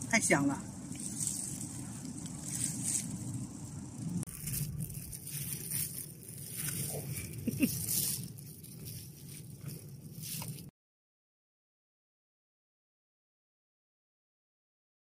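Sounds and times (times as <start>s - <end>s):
wind noise on microphone: 0.0s - 10.7s.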